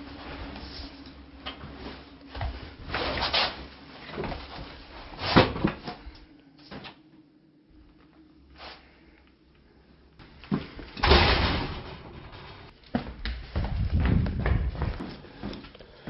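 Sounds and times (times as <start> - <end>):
bedding and clothes rustling: 0.0 - 7.0.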